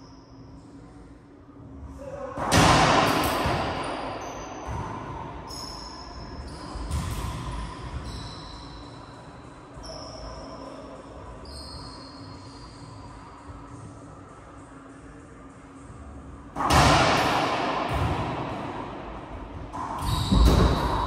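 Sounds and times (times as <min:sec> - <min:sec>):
racquetball smack echoing: 0:02.4 - 0:05.2, 0:16.6 - 0:21.0.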